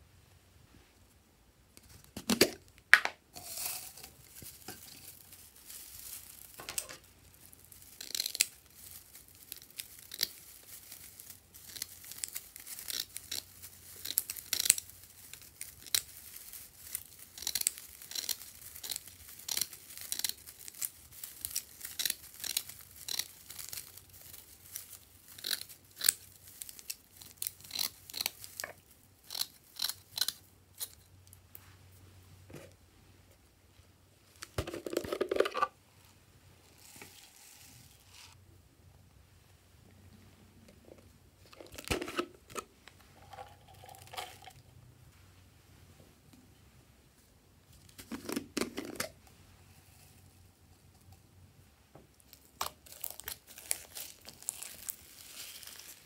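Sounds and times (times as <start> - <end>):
tinsel crinkling: 3.3 - 32.1, 34.2 - 38.4, 42.6 - 45.2, 52.2 - 56.0.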